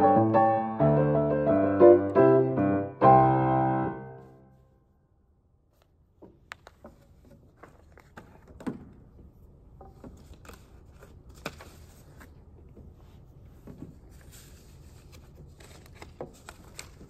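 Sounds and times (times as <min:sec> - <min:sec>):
rustling of person moving: 0:05.7 - 0:17.0.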